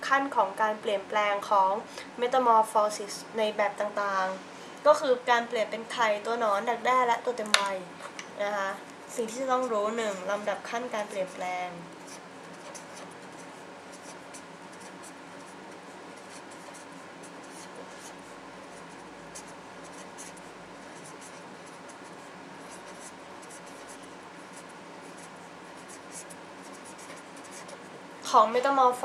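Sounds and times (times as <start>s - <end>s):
pen scratching on paper: 9.2s - 27.9s.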